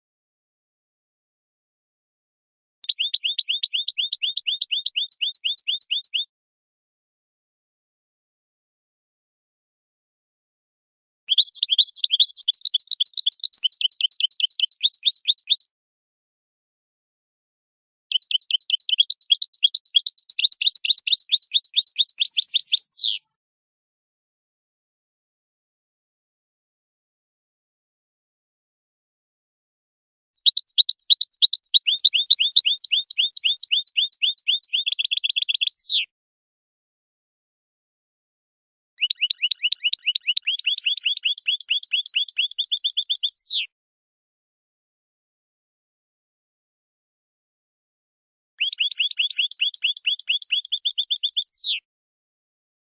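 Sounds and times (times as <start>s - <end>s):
goldfinch chirping song: 2.8s - 6.3s, 11.3s - 15.7s, 18.1s - 23.3s, 30.3s - 36.1s, 39.0s - 43.7s, 48.6s - 51.8s
falling bird whistle: 2.9s - 6.3s, 11.3s - 15.7s, 18.1s - 23.3s, 30.4s - 36.1s, 39.0s - 43.7s, 48.6s - 51.8s.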